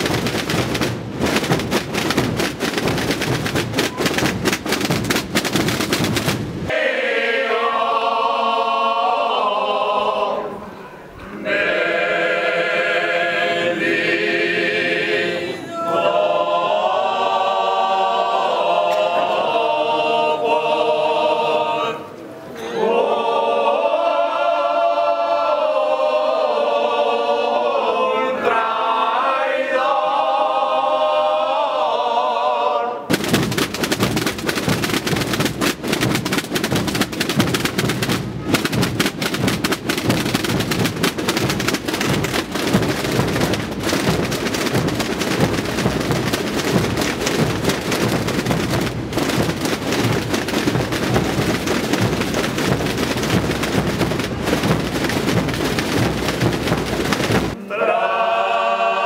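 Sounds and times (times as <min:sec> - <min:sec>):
snare and bass drum roll: 0:00.0 - 0:06.8, 0:33.1 - 0:57.6.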